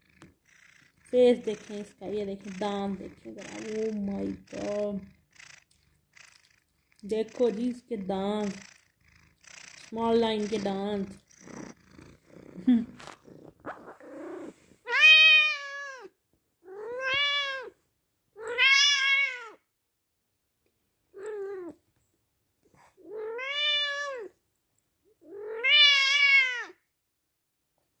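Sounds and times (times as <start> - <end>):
cat meowing: 14.2 - 17.8, 18.4 - 19.6, 23.1 - 24.3, 25.3 - 26.8.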